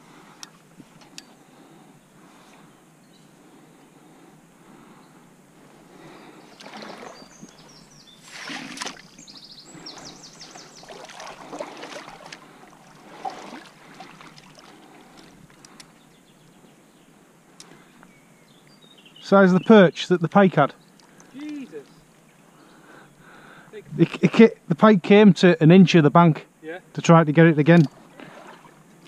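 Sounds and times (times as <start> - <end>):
water splashing and sloshing: 6.0 - 15.8, 27.7 - 29.0.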